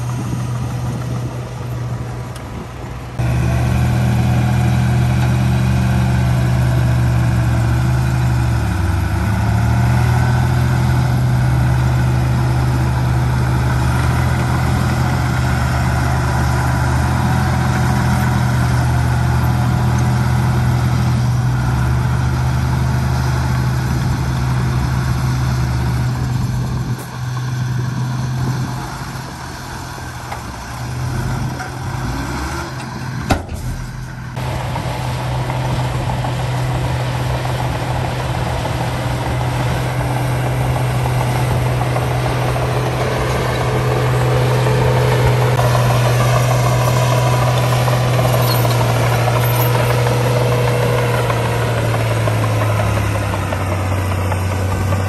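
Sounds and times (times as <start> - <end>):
heavy machinery diesel engine running: 0.0 - 55.0.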